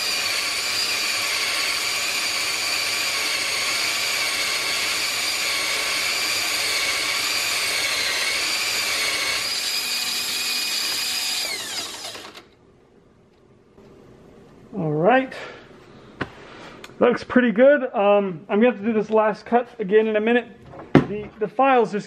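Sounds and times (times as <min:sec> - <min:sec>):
cordless drill whining: 0:00.0 - 0:12.6.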